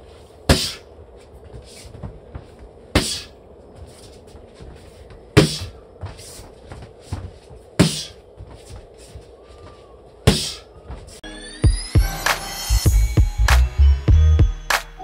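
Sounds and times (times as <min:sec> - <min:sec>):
boxing gloves smacking mitts: 0:00.5 - 0:00.8, 0:01.4 - 0:03.4, 0:05.4 - 0:09.2, 0:10.2 - 0:10.7.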